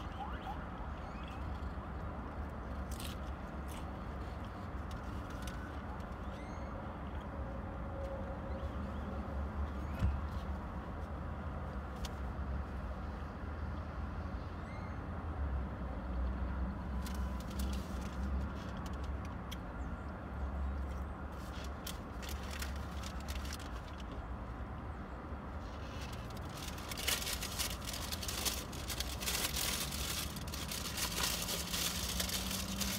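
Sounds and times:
vehicles passing outside: 0.0 - 32.9.

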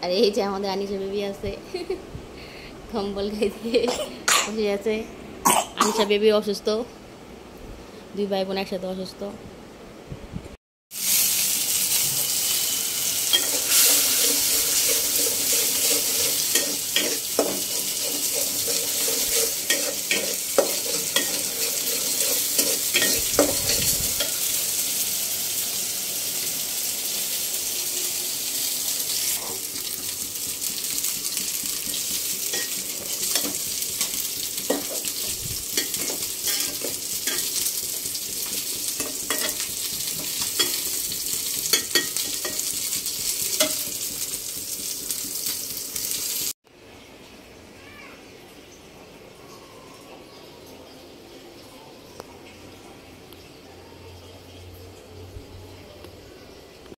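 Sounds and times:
fish sizzling in oil: 10.9 - 46.6
spatula scraping metal pot: 13.4 - 23.9.

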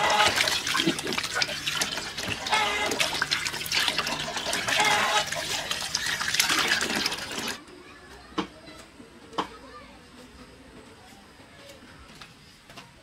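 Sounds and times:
running splashing water: 0.0 - 7.6.

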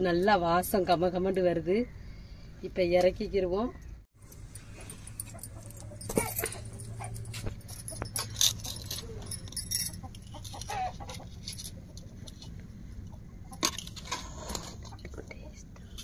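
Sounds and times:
clucking calls: 10.0 - 13.7.

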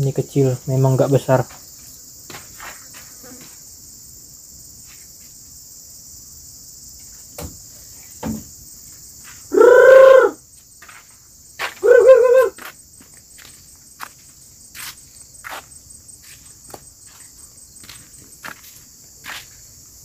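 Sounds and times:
insects droning: 0.0 - 20.0
owl hooting: 9.5 - 10.4, 11.8 - 12.6.

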